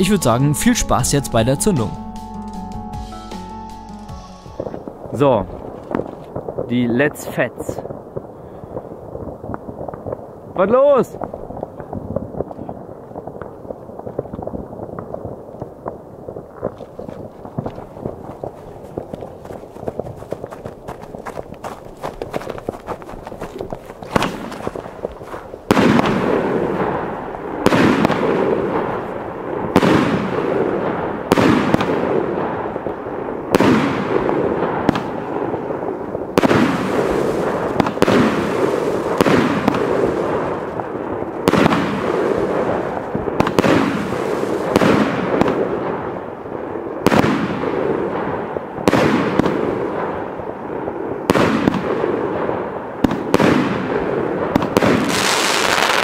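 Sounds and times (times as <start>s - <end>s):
firework crackle and rumble: 4.6s - 56.0s
loud sharp firework bangs: 23.7s - 56.0s
firework launches and bursting shells: 24.0s - 46.2s, 47.0s - 50.3s, 51.2s - 56.0s.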